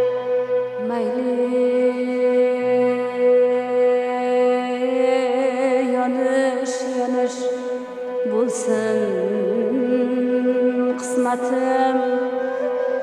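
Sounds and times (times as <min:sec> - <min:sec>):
string accompaniment: 0:00.0 - 0:13.0.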